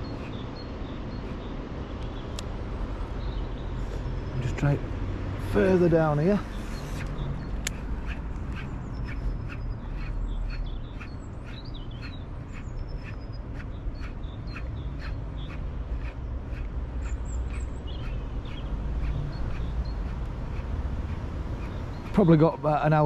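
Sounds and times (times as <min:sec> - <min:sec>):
low wind rumble: 0:00.0 - 0:23.0
faint bird calls: 0:06.3 - 0:22.5.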